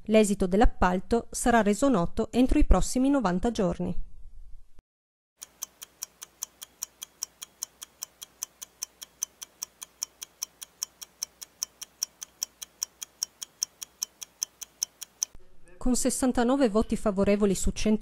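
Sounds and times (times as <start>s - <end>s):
clock ticking quickly: 5.4s - 15.4s.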